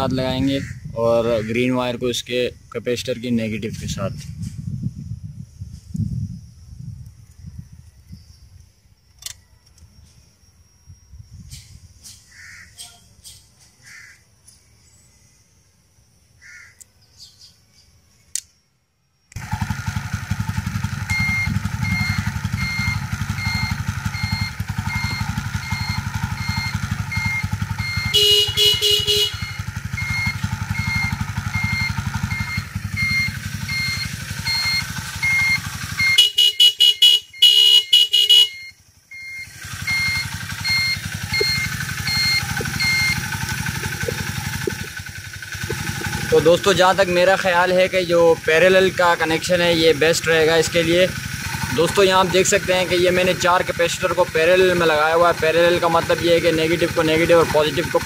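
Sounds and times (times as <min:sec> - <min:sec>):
motorcycle engine idling: 0:19.4 - 0:58.0
turn-signal buzzer beeping: 0:21.0 - 0:46.5
electric horn honking: 0:21.6 - 0:38.8.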